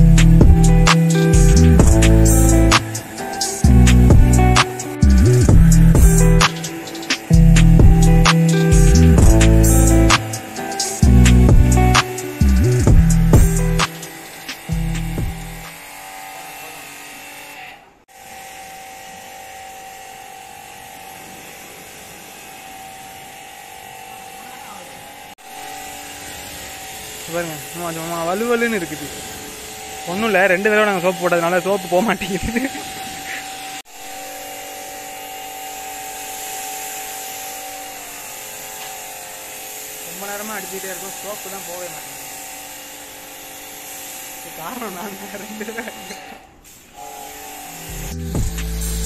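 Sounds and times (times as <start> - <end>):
pressure washer motor whine: 0.0 - 16.0, 18.3 - 49.0
water spraying hiss: 36.2 - 42.7
water jet hissing: 38.2 - 49.0.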